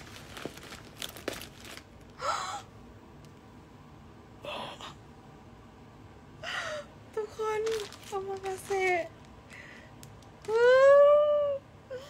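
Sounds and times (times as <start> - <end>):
woman gasping: 2.2 - 2.7, 6.4 - 7.0.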